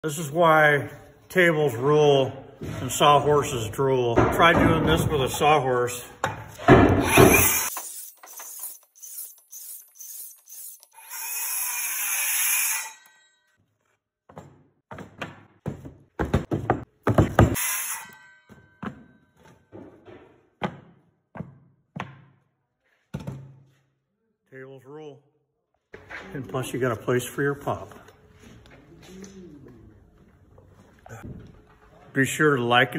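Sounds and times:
circular saw cutting wood: 0:06.9 - 0:13.5, 0:17.6 - 0:18.4.

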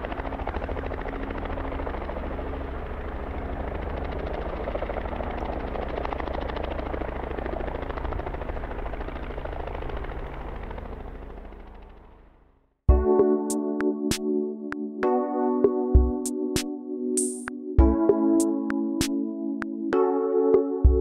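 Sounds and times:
helicopter engine drone: 0:00.0 - 0:12.5
helicopter rotor beat: 0:00.0 - 0:13.2.

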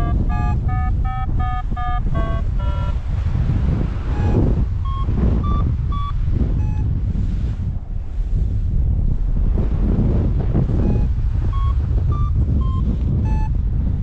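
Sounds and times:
variometer beeping: 0:00.0 - 0:07.1, 0:10.3 - 0:14.0
wind rushing over microphone: 0:00.0 - 0:14.0.

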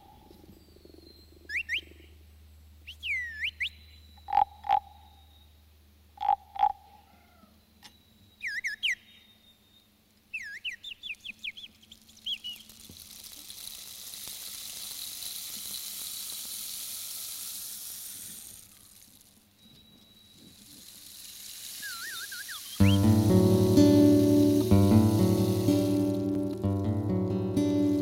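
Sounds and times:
bird-call whistle chirps: 0:00.0 - 0:02.1, 0:02.8 - 0:04.4, 0:07.6 - 0:12.7, 0:19.6 - 0:21.0, 0:21.7 - 0:26.2
rainstick rustling hiss: 0:11.5 - 0:28.0.

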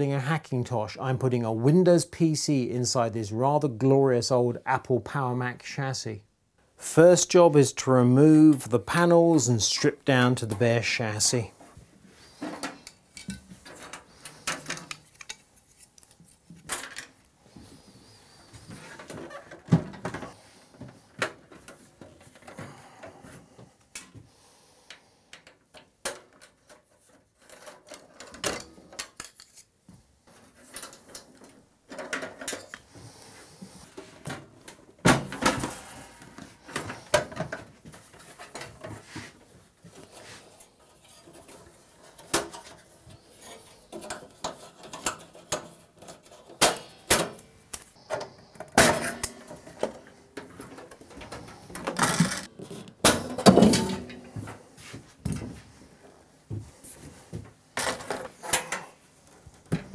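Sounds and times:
computer case panels clattering: 0:53.0 - 0:54.2.

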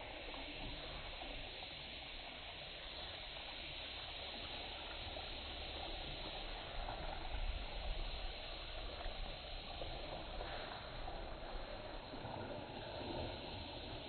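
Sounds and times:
low uneven rumble: 0:00.0 - 0:14.0.

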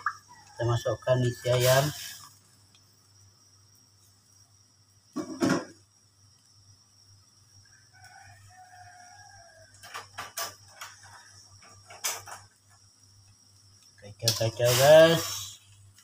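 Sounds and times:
rooster crowing: 0:07.6 - 0:11.4.

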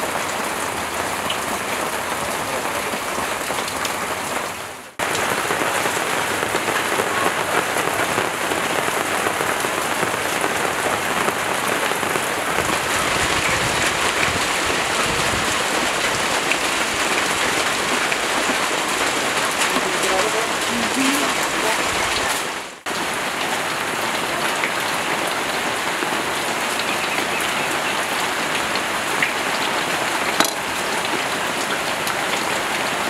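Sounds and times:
steady rain falling: 0:00.0 - 0:33.0.

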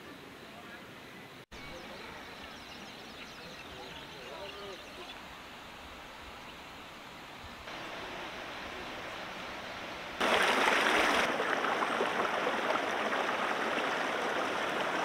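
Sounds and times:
stream rushing over stones: 0:07.7 - 0:15.0.

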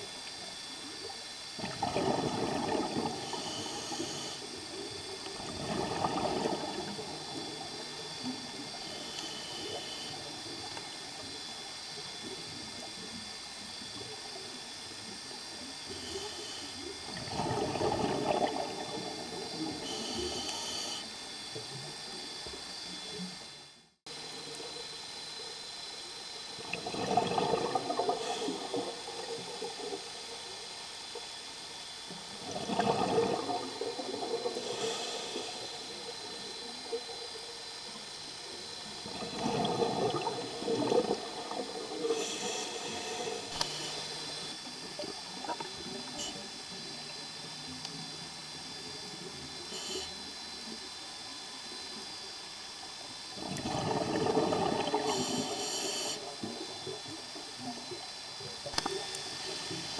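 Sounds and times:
exhaled bubbles gurgling underwater: 0:00.0 - 0:13.0, 0:15.2 - 0:20.8, 0:26.3 - 0:31.4, 0:32.0 - 0:47.4, 0:53.3 - 0:59.9
regulator hiss: 0:00.0 - 0:59.9.

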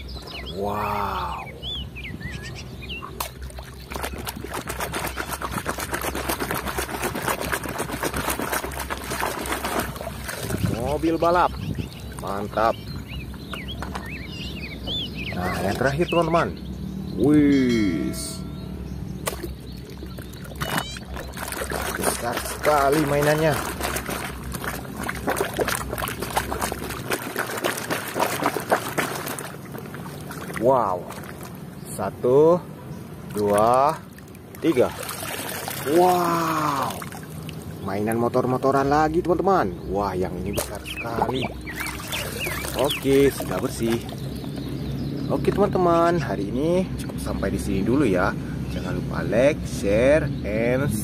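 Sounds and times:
water splashing in plastic tub: 0:03.0 - 0:14.2, 0:19.2 - 0:31.7, 0:33.2 - 0:39.4, 0:40.2 - 0:46.0.

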